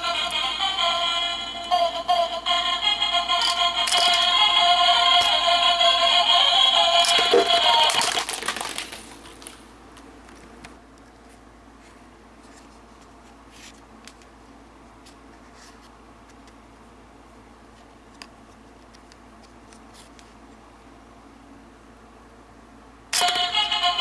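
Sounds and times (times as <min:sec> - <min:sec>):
faint steady hum: 0:00.0 - 0:24.0
spinning top rubbing and clicking: 0:03.3 - 0:05.6, 0:06.9 - 0:08.9.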